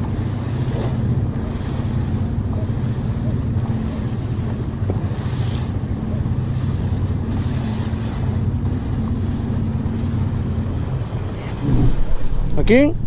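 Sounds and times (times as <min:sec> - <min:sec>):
boat engine idling: 0:00.0 - 0:13.0
water splashing against hull: 0:00.0 - 0:13.0
wind noise on microphone: 0:11.4 - 0:13.0.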